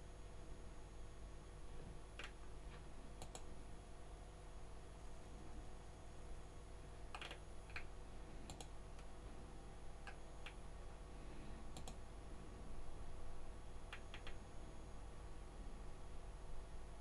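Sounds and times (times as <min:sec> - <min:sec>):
faint steady hum: 0:00.0 - 0:17.0
computer clicks: 0:02.2 - 0:03.5, 0:07.1 - 0:09.1, 0:10.0 - 0:10.6, 0:11.7 - 0:12.0, 0:13.9 - 0:14.4.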